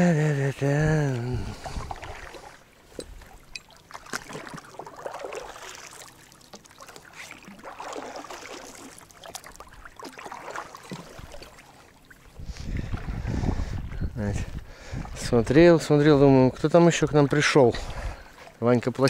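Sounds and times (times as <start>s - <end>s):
oars splashing in water: 0.5s - 13.9s.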